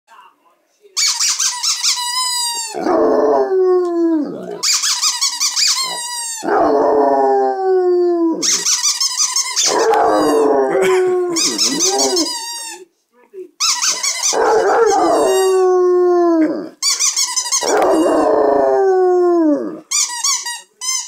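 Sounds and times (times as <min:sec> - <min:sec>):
dog howling: 0:02.6 - 0:04.6, 0:05.8 - 0:08.7, 0:09.6 - 0:12.4, 0:14.2 - 0:16.8, 0:17.6 - 0:19.9.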